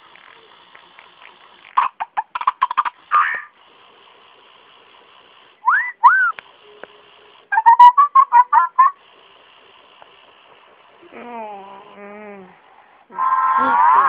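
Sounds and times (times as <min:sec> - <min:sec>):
electronic toy squeaks: 0:01.8 - 0:03.6, 0:05.6 - 0:09.1, 0:13.1 - 0:14.0.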